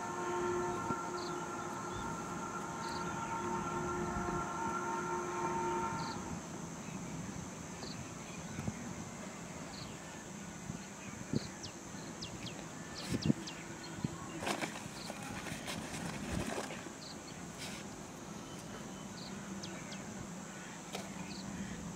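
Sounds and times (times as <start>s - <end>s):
bird calling: 0.0s - 6.4s
insect hum: 0.0s - 21.9s.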